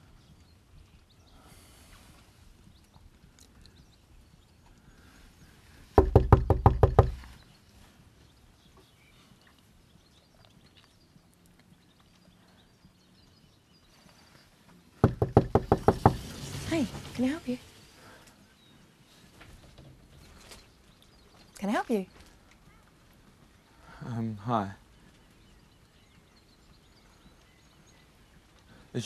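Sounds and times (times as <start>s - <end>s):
knocking on wooden door: 6.0s - 7.2s, 15.0s - 16.2s.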